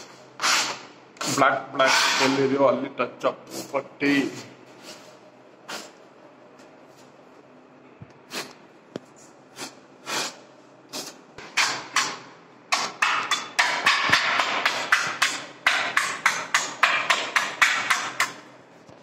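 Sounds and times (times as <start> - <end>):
tool scraping painted wall: 0.0 - 2.6, 9.6 - 18.4.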